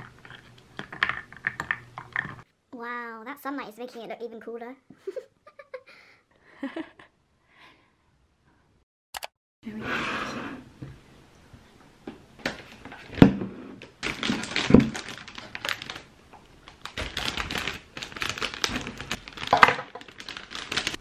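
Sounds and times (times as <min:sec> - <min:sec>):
plastic sleeve crinkling: 0:13.8 - 0:21.0.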